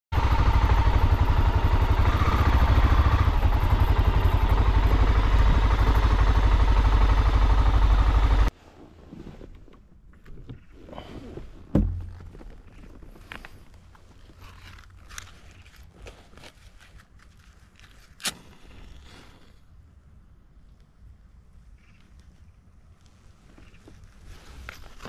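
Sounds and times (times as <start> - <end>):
motorcycle engine running: 0.1 - 8.5
faint handling sounds: 8.5 - 19.9, 20.5 - 25.0
thump: 11.7 - 12.2.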